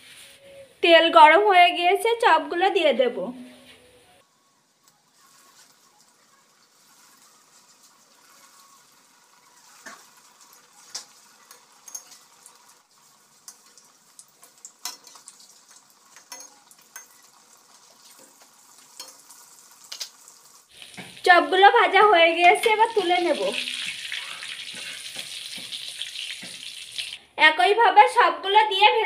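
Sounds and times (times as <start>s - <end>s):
food sizzling in hot oil: 4.9s - 27.2s.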